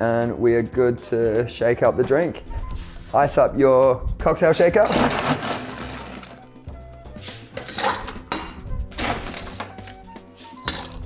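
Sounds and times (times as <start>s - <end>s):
background music: 0.0s - 11.0s
ice cubes clinking in shaker: 4.9s - 6.4s, 10.6s - 11.0s.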